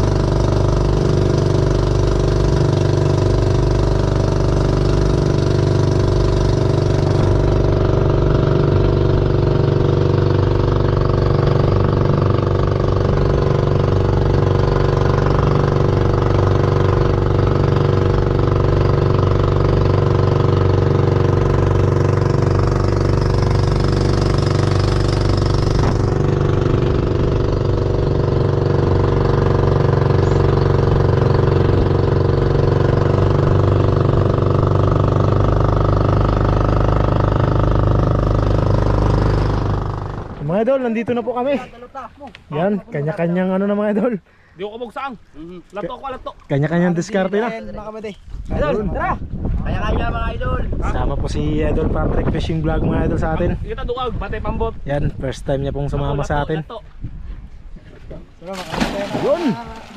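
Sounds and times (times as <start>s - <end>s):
boat engine running: 0.0s - 41.6s, 58.5s - 59.9s.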